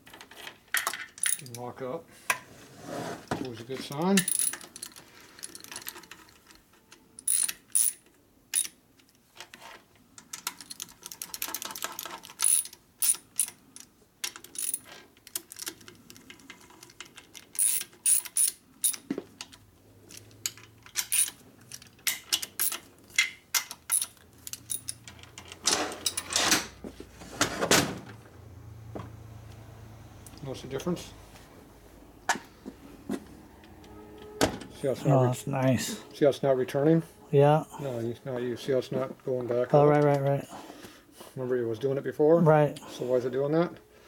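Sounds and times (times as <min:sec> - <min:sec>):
metal clicks and clanks: 0:10.2 - 0:26.7.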